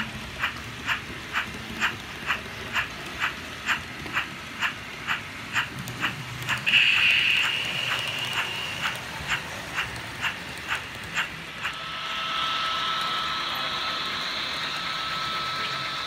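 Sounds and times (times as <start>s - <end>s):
model train clicking: 0.0s - 16.0s
model train high whine with hiss: 6.5s - 9.4s, 10.8s - 16.0s.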